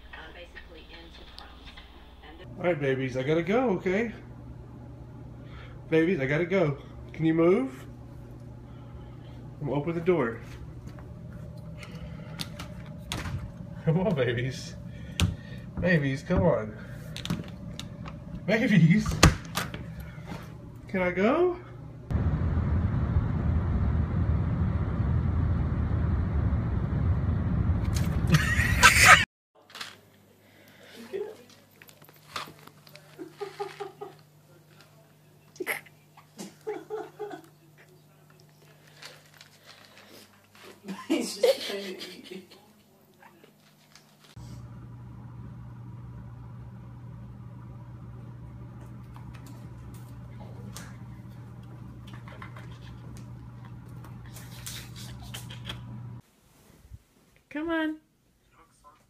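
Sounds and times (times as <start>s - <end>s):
steady low hum: 0.0s - 29.2s, 44.3s - 56.2s
road and engine rumble: 22.1s - 29.2s, 44.4s - 56.2s.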